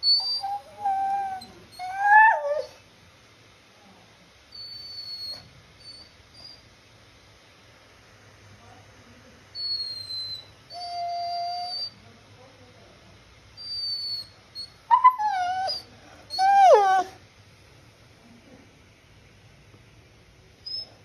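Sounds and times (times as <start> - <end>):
dog whining: 0.0 - 2.8, 4.5 - 6.7, 9.6 - 12.0, 13.6 - 17.2, 20.6 - 21.0.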